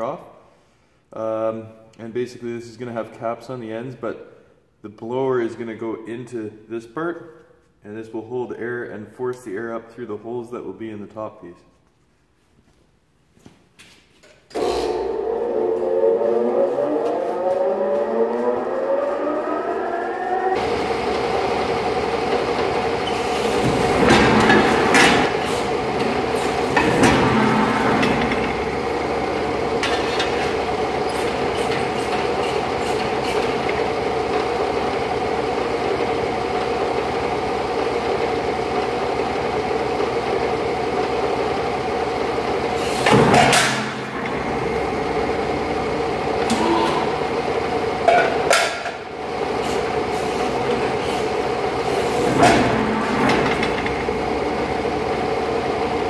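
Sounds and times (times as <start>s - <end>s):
press brake mechanical hum: 20.6s - 38.2s, 39.4s - 56.0s
loud metallic clanks: 22.3s - 29.1s, 42.9s - 45.4s, 48.0s - 49.1s.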